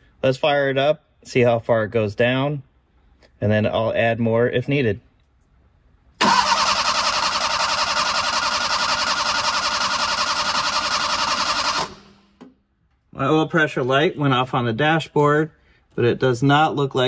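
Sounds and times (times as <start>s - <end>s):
engine cranked by starter motor: 6.2s - 12.2s.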